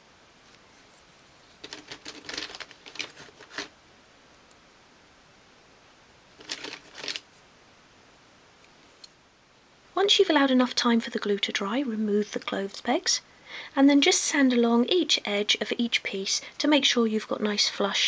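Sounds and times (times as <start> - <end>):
wooden clothes pegs clicking: 6.4 - 7.2.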